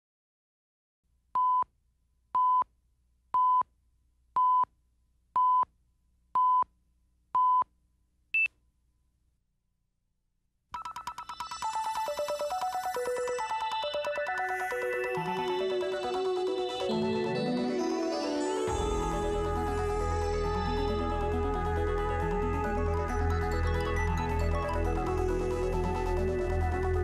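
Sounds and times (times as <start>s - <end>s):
music: 10.8s - 27.0s.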